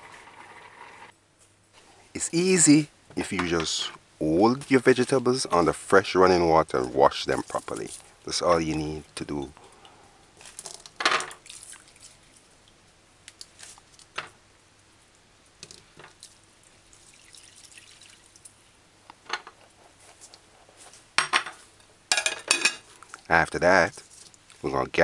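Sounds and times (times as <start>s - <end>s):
water splashing and dripping: 11.3s - 13.6s, 16.2s - 18.6s.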